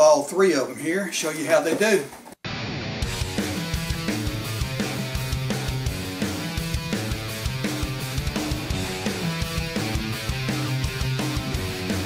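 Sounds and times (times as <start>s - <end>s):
guitar: 1.6s - 12.0s
steady drum beat: 3.1s - 12.0s.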